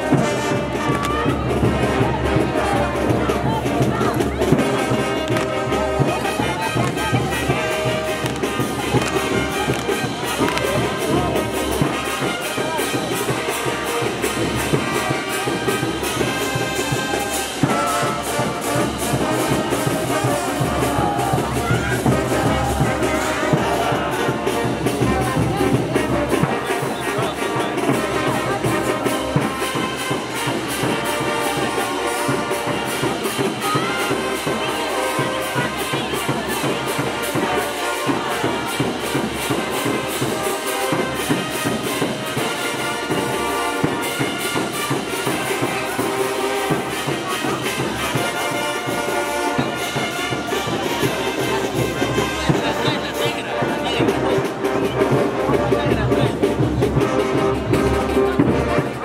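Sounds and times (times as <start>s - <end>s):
drums beating: 0.0s - 59.0s
trumpets and trombones: 0.0s - 59.0s.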